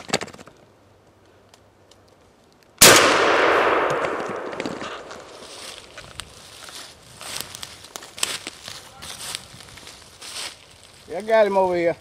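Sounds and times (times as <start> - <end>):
shotgun shot echoing: 2.8 - 5.5.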